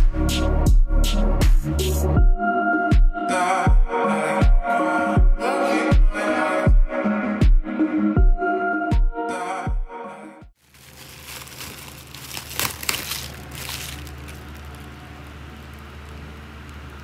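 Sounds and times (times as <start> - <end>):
electronic music with drum hits: 0.0 - 4.6, 5.2 - 9.9
crackling handling noise: 10.6 - 17.0.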